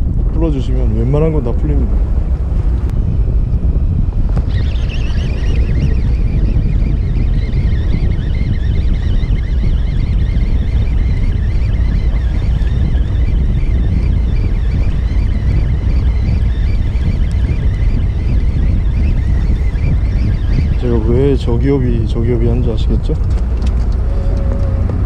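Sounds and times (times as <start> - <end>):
wind and boat rumble: 0.0 - 25.0
fishing reel gears whining: 4.4 - 21.3, 23.5 - 25.0.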